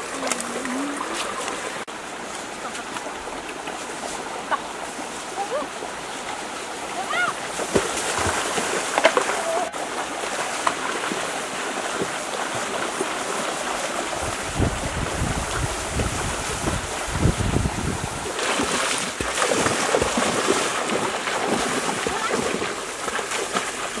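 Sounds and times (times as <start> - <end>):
people wading through water: 0.0 - 24.0
river water rushing: 0.0 - 24.0
wind rumbling on microphone: 13.6 - 18.4.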